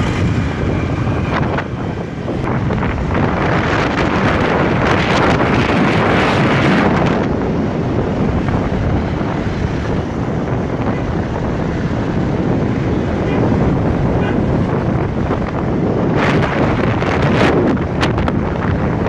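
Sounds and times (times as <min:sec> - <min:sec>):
road and traffic noise: 0:00.0 - 0:19.0
wind rumble on microphone: 0:00.0 - 0:19.0.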